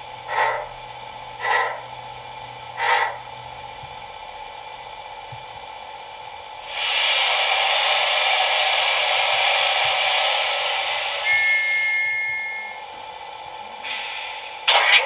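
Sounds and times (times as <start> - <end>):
model steam locomotive chuffs: 0.0 - 2.0, 2.7 - 3.3, 6.6 - 12.9, 13.6 - 15.0
steady low hum: 0.0 - 15.0.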